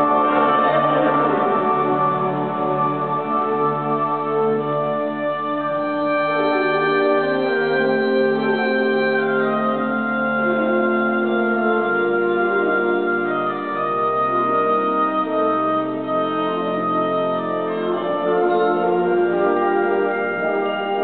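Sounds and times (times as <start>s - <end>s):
concert band playing chords: 0.0s - 4.6s.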